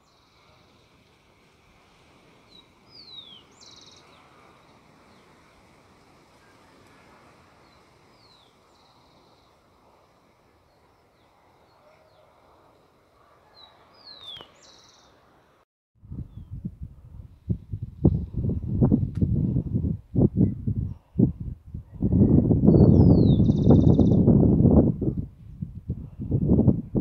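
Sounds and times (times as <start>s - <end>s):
faint outdoor background: 0.0s - 27.0s
bird whistle and buzzy trill: 2.5s - 5.2s, 13.6s - 15.2s, 22.3s - 24.3s
low rumbling bursts on microphone: 16.0s - 27.0s.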